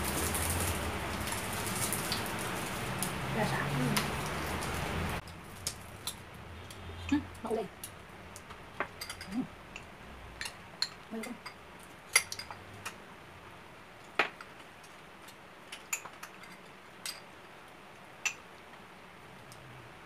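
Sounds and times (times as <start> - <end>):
metal spoons clicking on tubs: 7.8 - 13.0.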